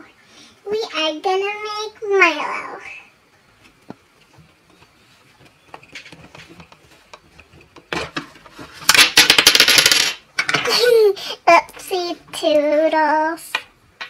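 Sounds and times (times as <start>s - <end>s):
plastic toy clicks and knocks: 8.9s - 10.8s.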